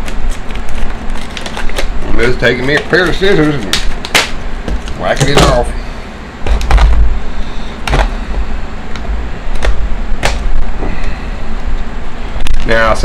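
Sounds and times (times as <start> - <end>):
plastic packaging crackling: 0.0 - 5.7.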